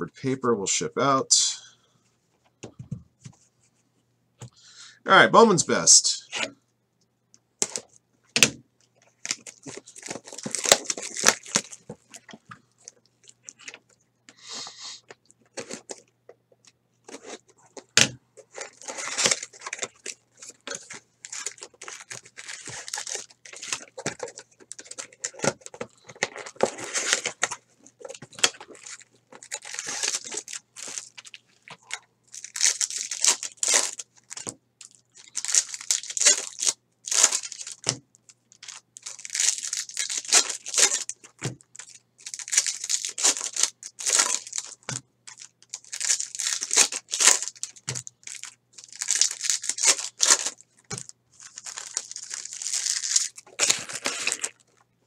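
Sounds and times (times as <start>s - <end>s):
wrappers crinkling and tearing: 9.1s - 13.9s, 17.1s - 54.9s.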